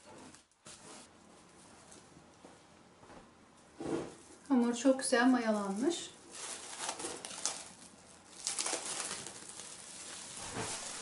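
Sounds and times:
cling film crinkling: 0:05.4 - 0:11.0.

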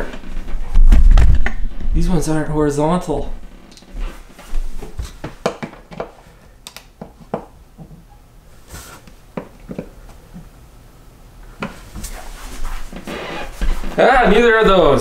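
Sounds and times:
short rubbing sound: 0:12.0 - 0:14.0.

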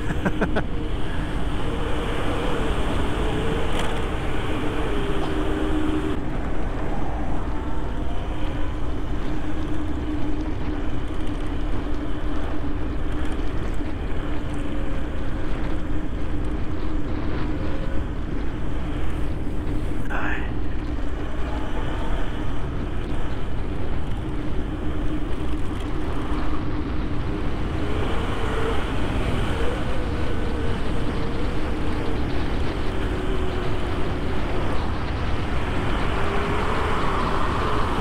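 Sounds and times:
road noise: 0:00.0 - 0:38.0
wind rushing over microphone: 0:00.0 - 0:38.0.

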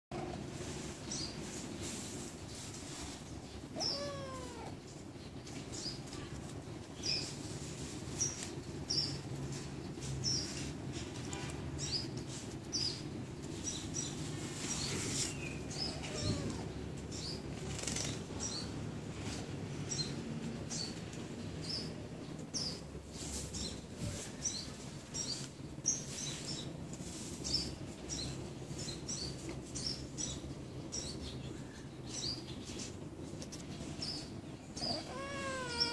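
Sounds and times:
kitten meowing: 0:03.8 - 0:04.8, 0:15.8 - 0:16.7, 0:34.8 - 0:35.9.

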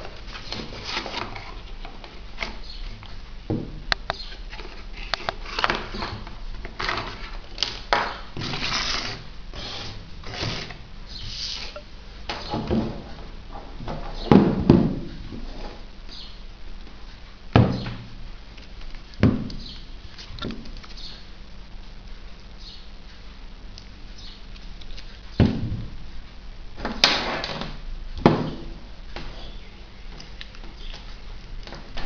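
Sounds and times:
plastic wrap and cardboard rustling: 0:00.0 - 0:03.3, 0:04.3 - 0:11.8.

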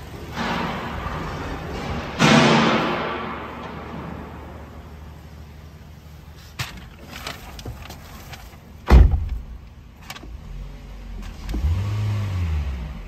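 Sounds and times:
sharp thump: 0:08.9 - 0:09.5
car engine revving: 0:10.3 - 0:13.0.

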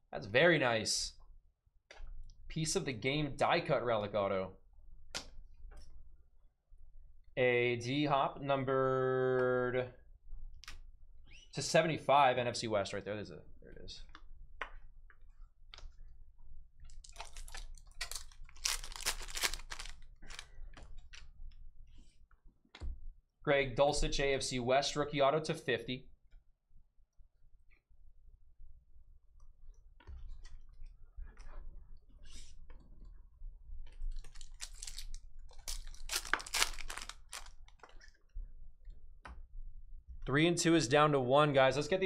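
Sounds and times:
foil wrapper crinkling and tearing: 0:17.0 - 0:20.5, 0:34.1 - 0:37.8.

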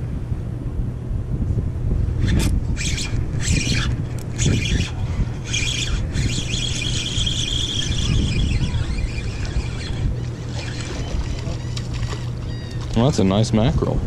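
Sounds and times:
wind rumble on microphone: 0:00.0 - 0:14.0
fishing reel drag buzzing: 0:02.2 - 0:13.0.

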